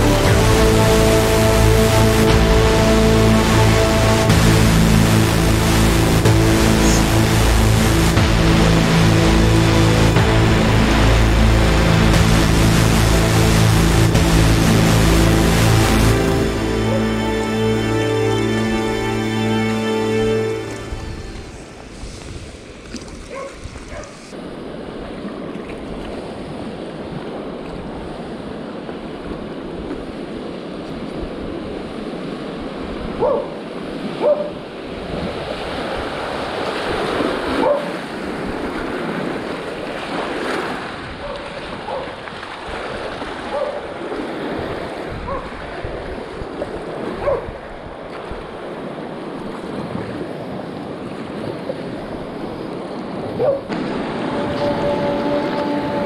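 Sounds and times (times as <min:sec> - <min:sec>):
river water rushing and splashing: 0:00.0 - 0:56.0
wind buffeting microphone: 0:20.9 - 0:56.0.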